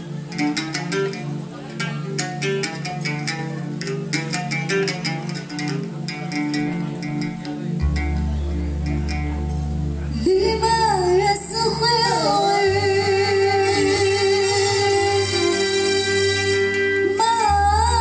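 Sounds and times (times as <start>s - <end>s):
keyboard with bass line: 0.0s - 18.0s
oud: 0.0s - 18.0s
violin: 5.7s - 18.0s
woman singing through a microphone: 10.1s - 18.0s.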